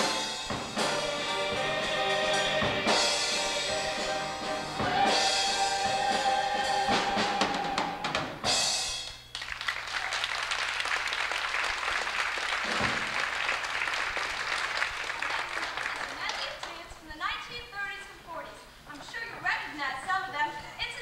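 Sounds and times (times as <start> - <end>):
drum hits: 0.0 - 9.0, 12.6 - 13.4
choir and band final chord: 0.5 - 8.4
audience applause: 9.3 - 16.8.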